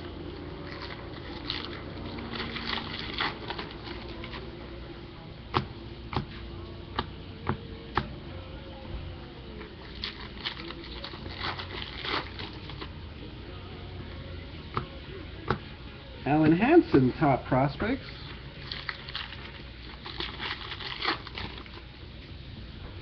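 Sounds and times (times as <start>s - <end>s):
cards rustling and flicking: 18.6s - 21.9s.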